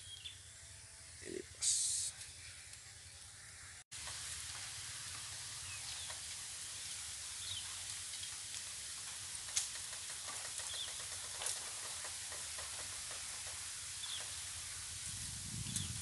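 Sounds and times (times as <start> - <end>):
bird chirps: 0.0 - 0.5, 10.6 - 11.3
steady hiss: 0.0 - 16.0.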